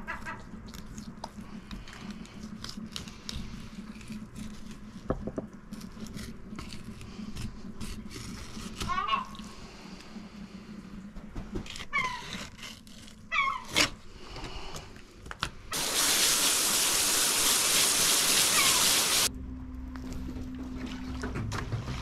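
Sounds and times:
loud steady hiss: 15.7s - 19.3s
gull calling: 18.4s - 19.2s.

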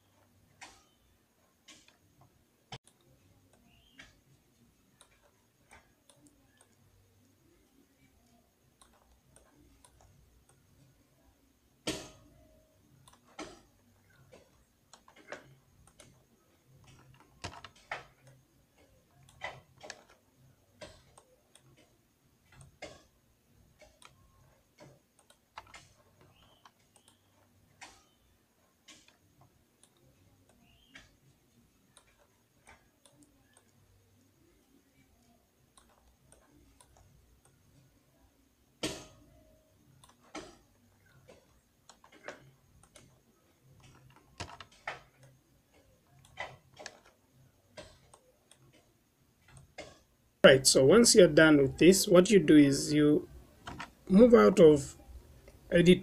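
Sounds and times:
computer mouse clicks: 4.8s - 6.8s, 8.0s - 11.0s, 13.0s - 20.2s, 23.8s - 38.0s, 40.0s - 43.2s, 43.8s - 50.1s
keyboard keys clicking: 43.8s - 47.1s.

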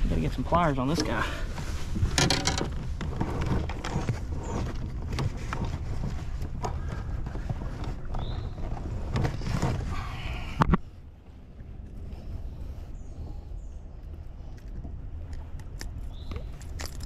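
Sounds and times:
steady low rumble: 0.0s - 17.0s
knocks and clicks of handling: 2.0s - 9.8s.

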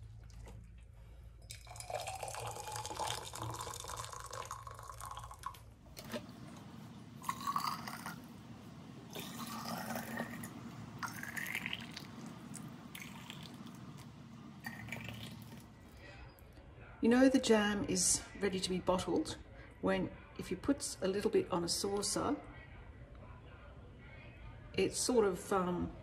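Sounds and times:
water pouring into glass jars: 1.4s - 16.0s.

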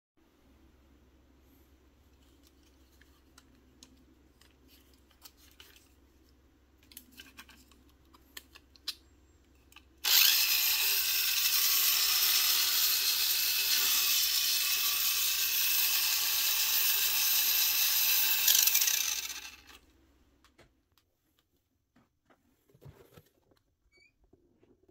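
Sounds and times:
toy car motor whirring: 10.0s - 19.8s.

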